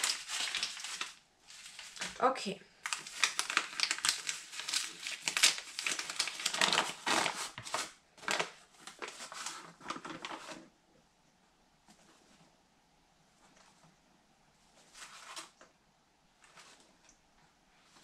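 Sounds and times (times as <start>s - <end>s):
paper bag crinkling: 0.0s - 10.7s, 14.7s - 15.7s.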